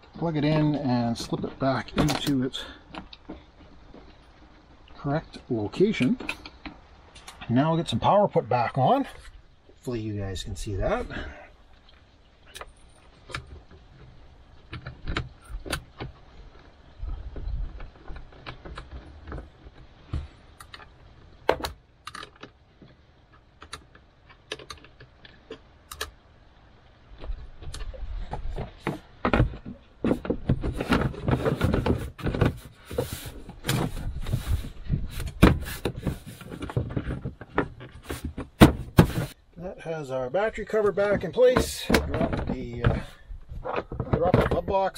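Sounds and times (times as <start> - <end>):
plastic cover knocks and scraping: 28.4 - 39.4, 41.1 - 44.9.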